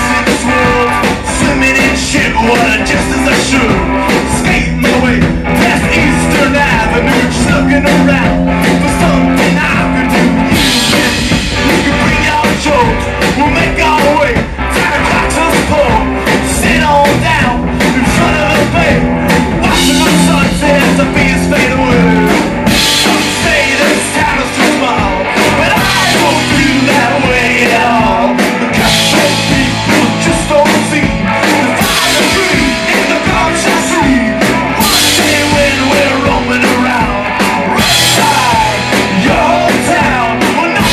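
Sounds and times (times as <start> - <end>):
distorted electric guitar: 0.0 - 40.9
drum kit: 0.0 - 40.9
electric bass: 0.0 - 40.9.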